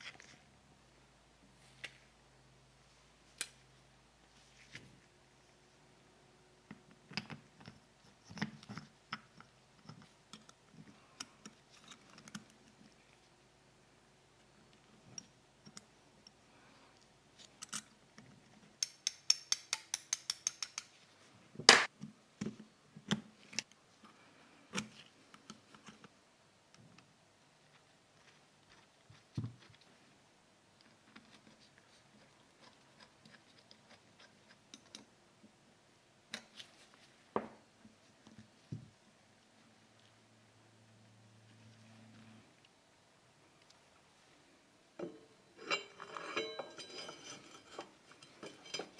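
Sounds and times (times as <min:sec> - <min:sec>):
hand tools clinking on workbench: 0:45.0 - 0:48.9.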